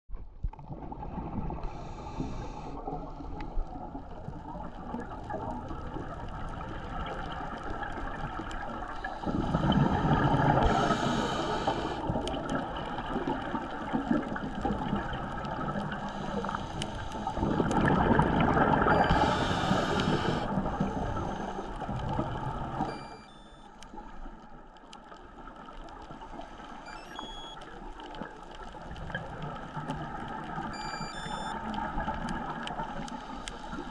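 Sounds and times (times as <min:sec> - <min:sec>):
regulator inhale hiss: 0:01.6 - 0:03.6, 0:09.0 - 0:12.1, 0:16.1 - 0:17.4, 0:19.0 - 0:21.9
diver exhaling bubbles: 0:17.2 - 0:21.4.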